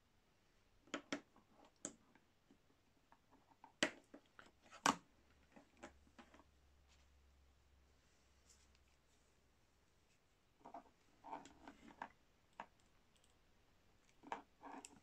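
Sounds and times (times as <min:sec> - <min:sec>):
small plastic clicks and knocks: 0:00.8 - 0:06.5, 0:10.6 - 0:13.4.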